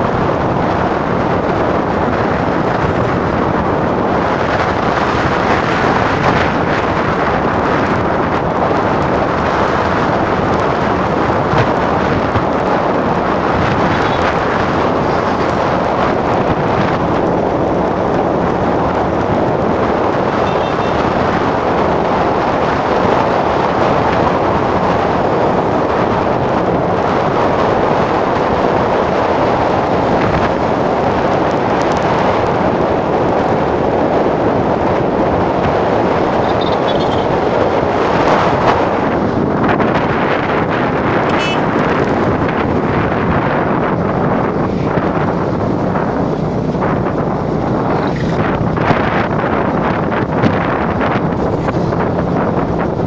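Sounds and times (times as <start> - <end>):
road noise: 0.0 - 53.0
wind rushing over microphone: 0.0 - 53.0
motorcycle engine running: 0.2 - 22.0, 35.1 - 37.5.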